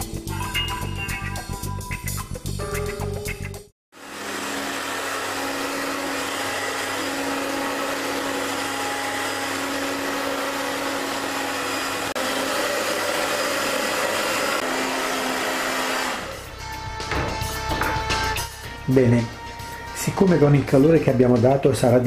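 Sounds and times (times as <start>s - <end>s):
hair dryer blowing: 3.9s - 16.6s.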